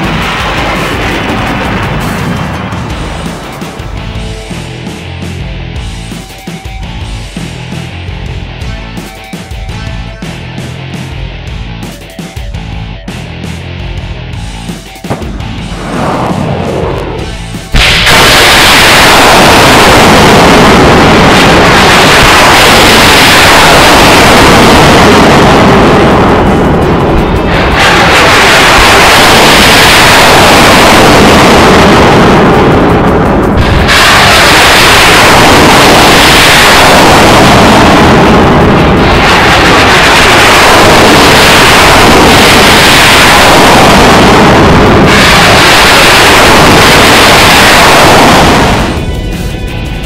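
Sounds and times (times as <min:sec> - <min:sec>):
loud rocket launch blast: 0:00.0 - 0:04.2, 0:15.1 - 0:49.2
rocket motors roaring: 0:00.0 - 0:06.1, 0:13.3 - 0:50.0.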